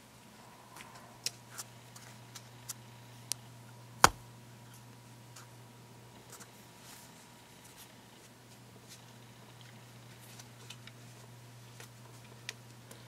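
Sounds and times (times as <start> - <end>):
knuckles knocking on cards: 4.0 - 4.2.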